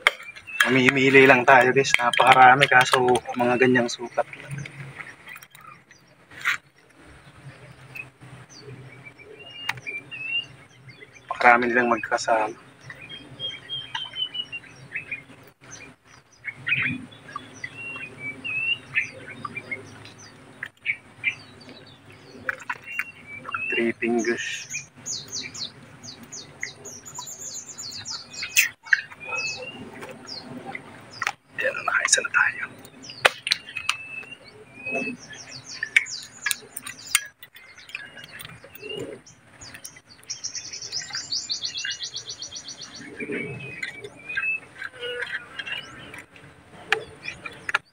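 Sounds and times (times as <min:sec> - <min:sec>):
birds chirping: 0:00.0 - 0:47.9
sharp clicks: 0:32.0 - 0:34.3.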